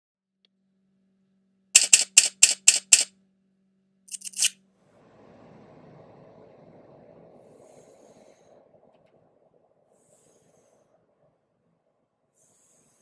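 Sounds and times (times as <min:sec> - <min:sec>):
faint steady hum: 0:00.5 - 0:13.0
sharp clicks: 0:01.8 - 0:03.1.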